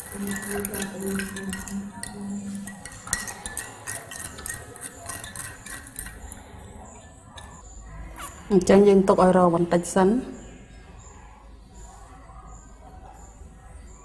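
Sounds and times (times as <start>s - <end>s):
spoons clinking against glasses: 0.0s - 7.6s.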